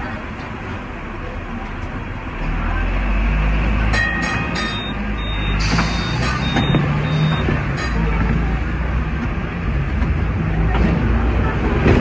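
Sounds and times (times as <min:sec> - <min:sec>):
tram motor hum: 0:00.0 - 0:12.0
wheels rumbling on rail: 0:00.0 - 0:12.0
short high beeps: 0:04.4 - 0:07.5.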